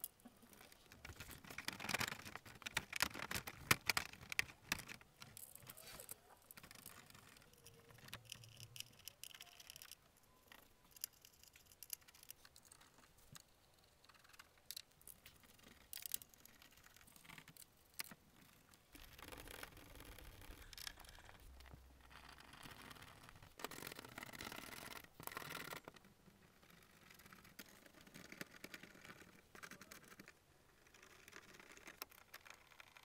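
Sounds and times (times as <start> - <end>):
hands clicking plastic fasteners: 0.1 - 13.5.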